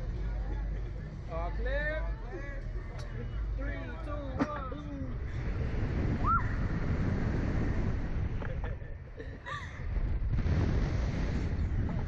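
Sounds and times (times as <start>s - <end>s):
wind rushing over microphone: 5.0s - 12.0s.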